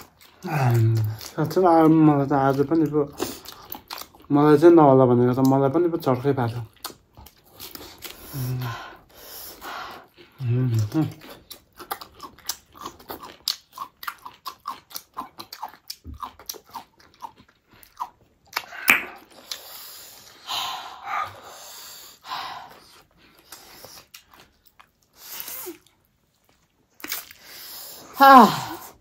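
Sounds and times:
chewing and lip smacking: 0:00.0 - 0:04.3, 0:06.5 - 0:08.4, 0:09.0 - 0:20.4, 0:22.7 - 0:27.8
breathy sounds: 0:08.1 - 0:11.0.

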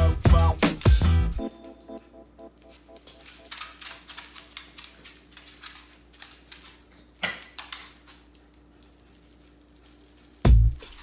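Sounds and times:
dog claws clicking on hard floor: 0:02.6 - 0:11.0.

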